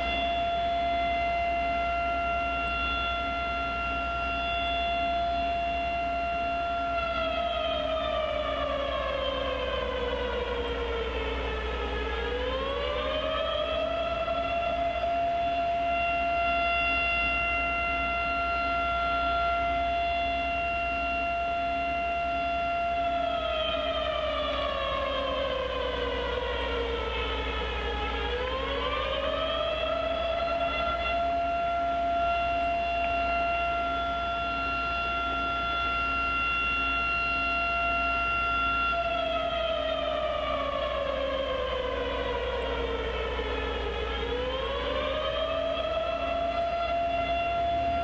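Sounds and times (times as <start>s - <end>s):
siren wailing: 0.0s - 48.0s.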